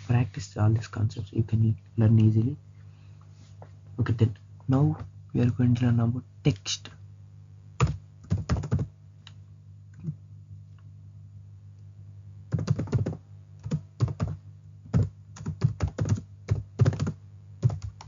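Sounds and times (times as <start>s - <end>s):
steady low hum: 0.0s - 18.0s
typing on a keyboard: 7.8s - 8.9s, 12.5s - 18.0s.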